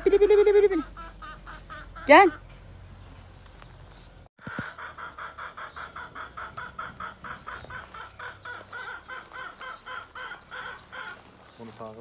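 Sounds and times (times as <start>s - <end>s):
chicken clucking: 0.0s - 2.5s, 4.4s - 11.4s.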